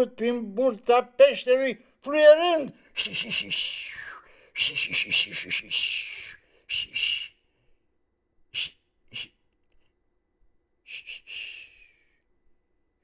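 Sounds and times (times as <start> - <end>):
man whistling breathily: 3.0 - 7.7, 8.6 - 9.4, 10.9 - 12.2.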